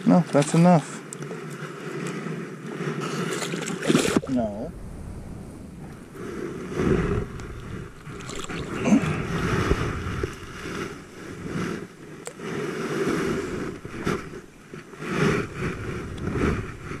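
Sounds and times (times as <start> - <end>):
water splashing: 0.4 - 17.0
clothing brushing camera: 9.4 - 17.0.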